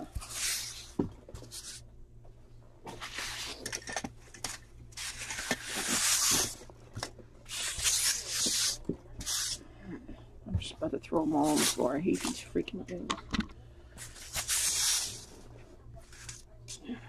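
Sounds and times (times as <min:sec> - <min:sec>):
packing peanuts rustling and squeaking: 0:02.9 - 0:06.8, 0:14.0 - 0:15.4.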